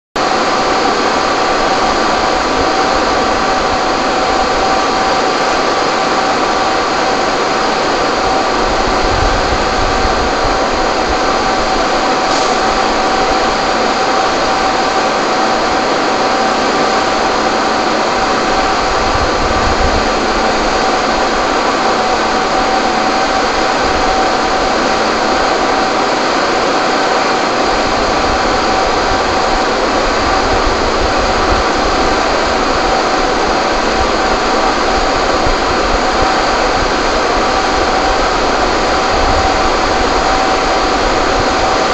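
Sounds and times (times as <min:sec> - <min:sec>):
fire engine pump droning: 0:00.2 - 0:41.9.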